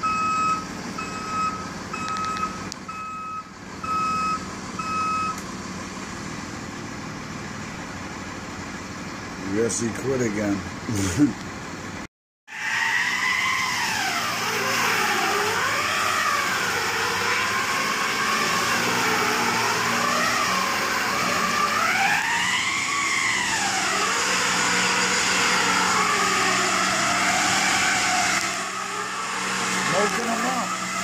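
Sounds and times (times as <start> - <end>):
truck engine drone: 0.0 - 31.0
truck tires spinning on ice: 12.5 - 31.0.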